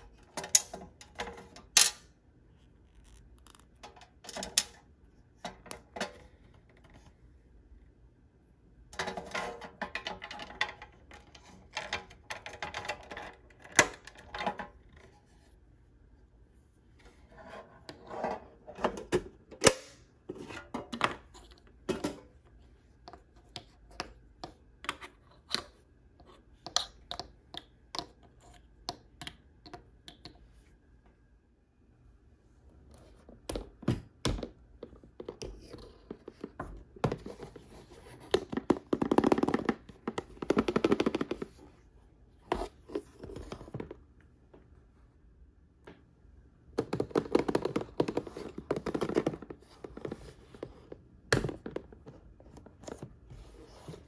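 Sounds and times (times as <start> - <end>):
plastic toys and packaging handled: 32.8 - 44.2, 46.8 - 54.0.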